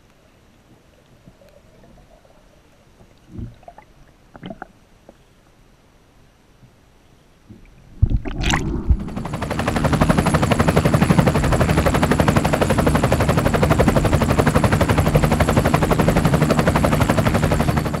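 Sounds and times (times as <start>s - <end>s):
fast even pulsing beat: 8.7s - 12.4s.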